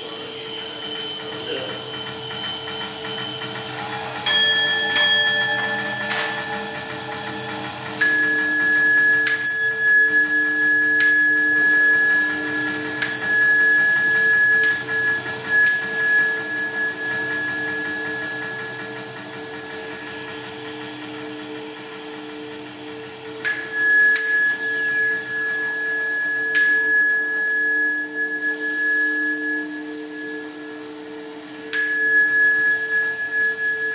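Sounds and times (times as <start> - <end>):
low drone: 0.0 - 26.8
small metal bell ringing: 0.6 - 20.5, 23.4 - 33.9.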